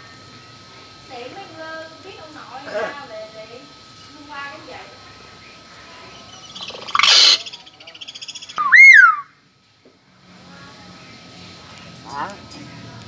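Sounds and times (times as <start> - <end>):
myna bird calling: 5.4 - 9.3.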